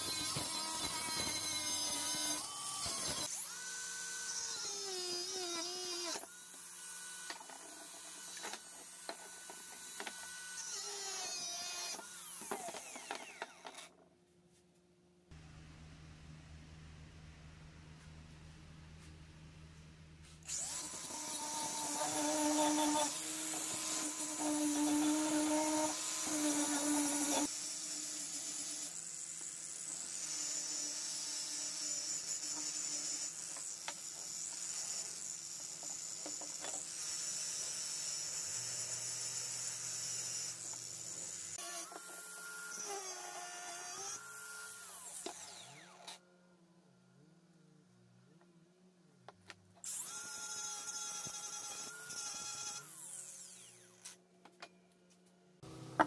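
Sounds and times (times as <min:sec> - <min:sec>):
angle grinder grinding metal: 0:00.0 - 0:13.9, 0:20.4 - 0:29.0, 0:49.9 - 0:54.2.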